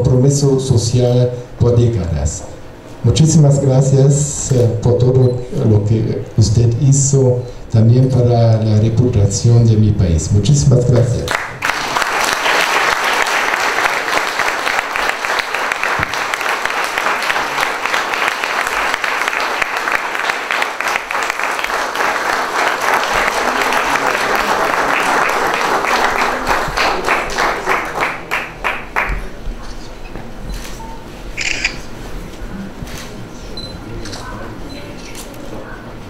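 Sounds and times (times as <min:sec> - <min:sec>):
audience applauding: 0:11.3 - 0:29.4.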